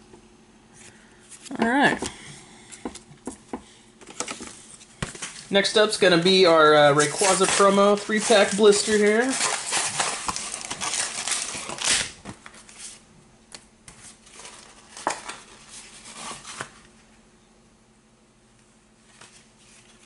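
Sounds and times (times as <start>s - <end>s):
plastic blister pack crinkling: 4.0s - 12.8s, 14.1s - 16.8s.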